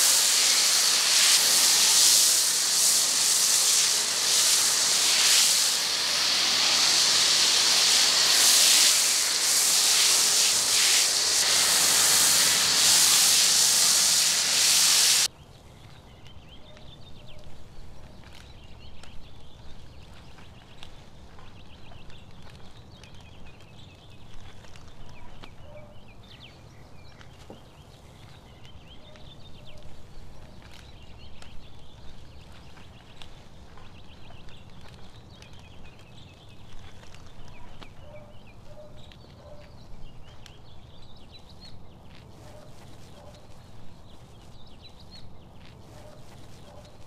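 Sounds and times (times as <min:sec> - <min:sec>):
pressure washer spray hissing: 0:00.0 - 0:15.3.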